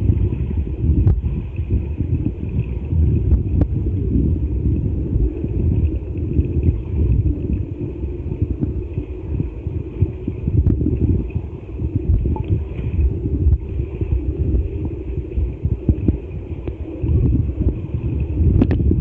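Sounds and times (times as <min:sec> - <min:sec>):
underwater churning rumble: 0:00.0 - 0:19.0.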